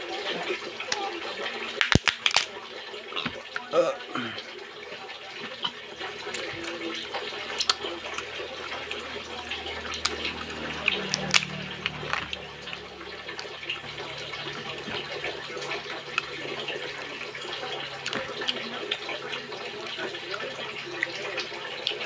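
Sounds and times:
crab shells cracking: 1.8s - 2.6s, 9.8s - 12.4s.

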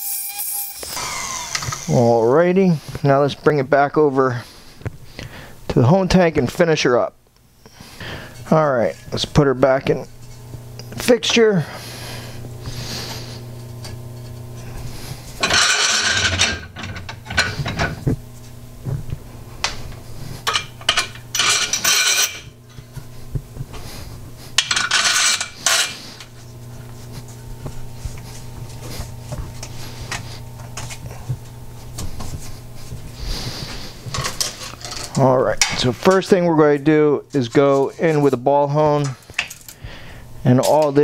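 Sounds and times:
steady low hum: 0.8s - 41.0s
metal clanking and rattling: 15.4s - 18.0s, 20.4s - 22.5s, 34.1s - 35.9s.

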